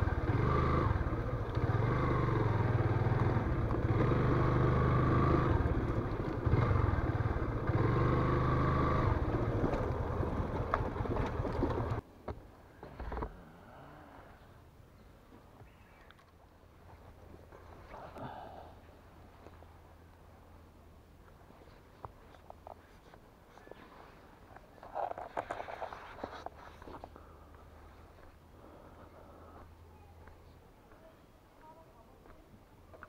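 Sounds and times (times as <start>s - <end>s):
motorcycle engine running: 0.0s - 12.0s.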